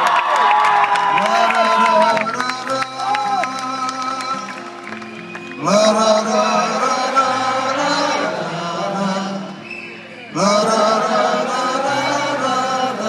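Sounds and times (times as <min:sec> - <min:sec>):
live rock music: 0:01.6 - 0:10.9.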